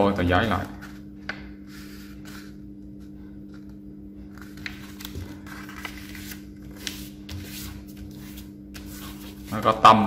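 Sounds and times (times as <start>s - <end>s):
steady low hum: 0.0s - 10.0s
paper rustling: 3.5s - 9.7s
paper tapping and crinkling: 4.4s - 8.9s.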